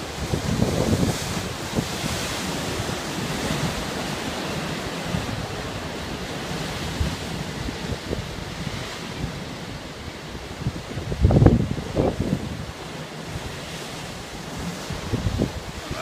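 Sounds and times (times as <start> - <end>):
surf breaking on rocks: 0.0 - 16.0
wind buffeting microphone: 0.0 - 16.0.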